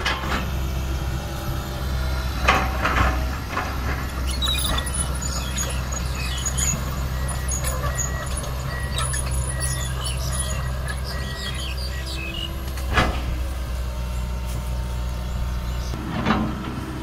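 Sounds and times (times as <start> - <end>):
excavator diesel engine: 0.0 - 17.0.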